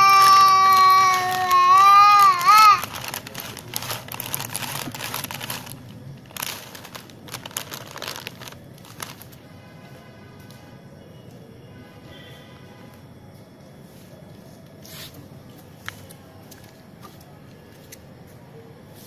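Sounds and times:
child crying: 0:00.0 - 0:02.9
plastic packet crinkling: 0:00.0 - 0:09.4.

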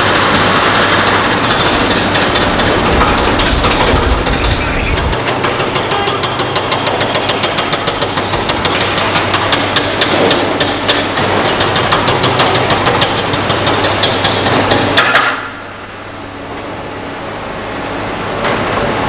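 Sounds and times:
diesel engines running: 0:00.0 - 0:19.0.

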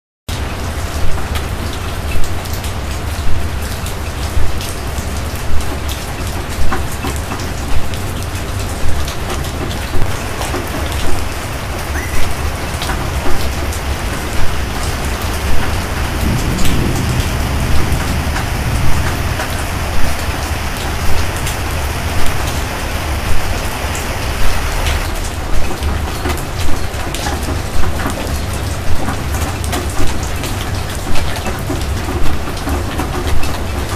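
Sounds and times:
heavy rain pouring: 0:00.3 - 0:33.9
loud pulse: 0:16.3 - 0:21.5.

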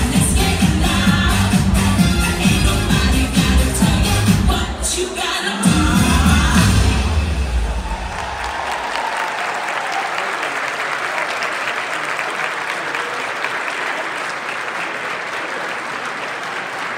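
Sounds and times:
bass of music: 0:00.0 - 0:05.0, 0:05.6 - 0:08.3
large audience applauding: 0:07.2 - 0:16.9.

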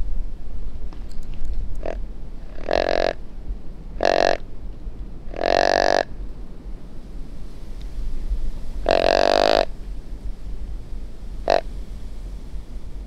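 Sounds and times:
deer grunt call: 0:01.8 - 0:03.2, 0:04.0 - 0:04.4, 0:05.3 - 0:06.1, 0:08.8 - 0:09.7, 0:11.4 - 0:11.7.

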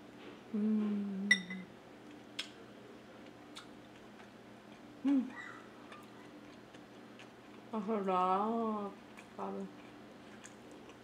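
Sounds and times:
closed-mouth humming: 0:00.5 - 0:01.8
chewing clicks: 0:03.2 - 0:04.9, 0:09.0 - 0:11.0.

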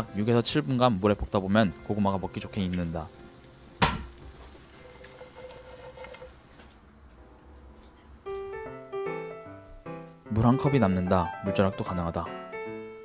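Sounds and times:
faint low background noise: 0:06.1 - 0:13.0.

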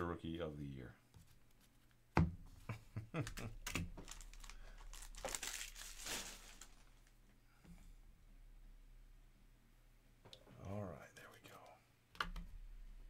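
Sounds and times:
wrapper tearing and crinkling: 0:04.0 - 0:07.1.

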